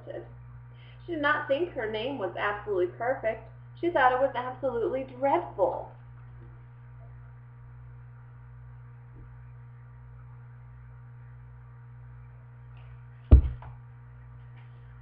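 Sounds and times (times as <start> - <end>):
electrical hum: 0.0 - 15.0
book thump near microphone: 13.3 - 13.8.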